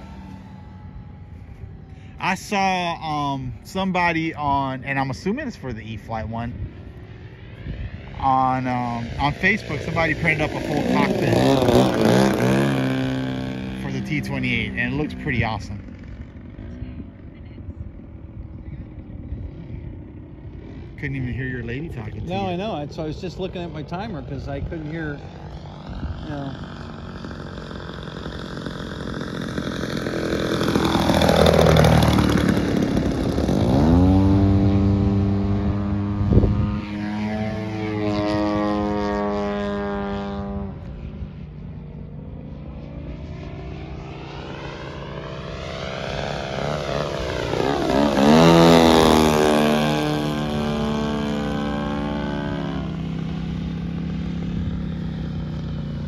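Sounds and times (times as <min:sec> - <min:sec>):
model airplane engine fly-bys: 0:00.0 - 0:56.0.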